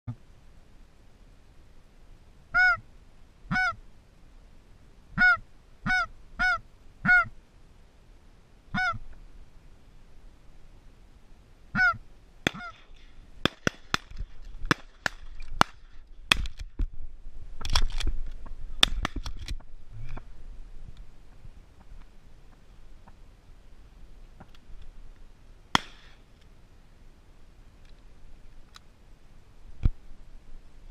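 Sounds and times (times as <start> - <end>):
honking calls: 2.5 - 2.8, 8.7 - 9.0, 11.7 - 12.8
shotgun shots: 12.4 - 16.6, 25.7 - 26.2
sharp cracks and clicks: 12.5 - 16.9, 18.8 - 19.6.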